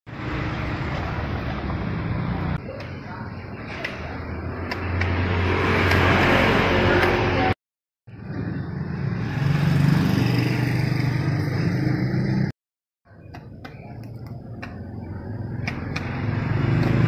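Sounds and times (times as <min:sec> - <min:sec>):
roadside traffic noise: 0:00.1 - 0:17.0.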